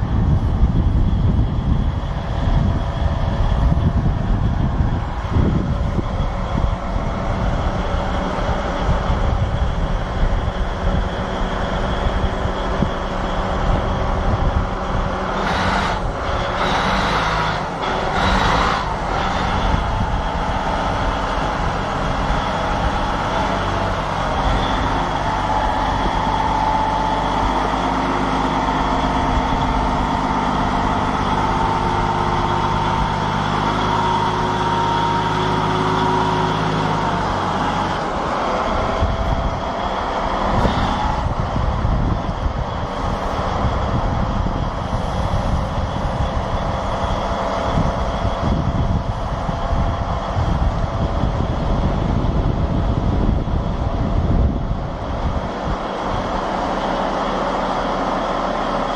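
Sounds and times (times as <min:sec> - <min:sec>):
diesel engine running under load: 0:00.0 - 0:58.9
steady whine: 0:00.0 - 0:58.9.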